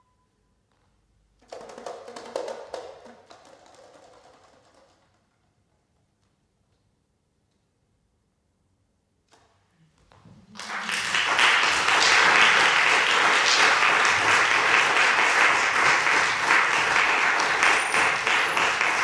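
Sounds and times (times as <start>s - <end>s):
audience applauding: 10.4s - 19.0s.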